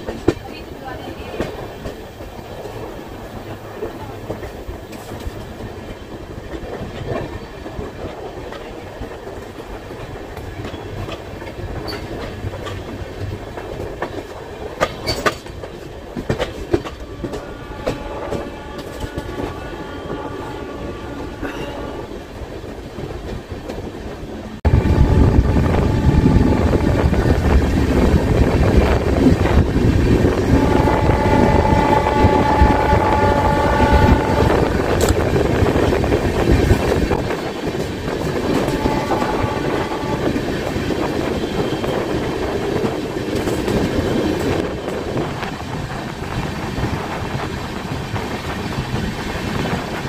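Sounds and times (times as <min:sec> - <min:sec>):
wheels clicking over rail joints: 0:00.0 - 0:20.2
train rumbling along track: 0:00.0 - 0:50.0.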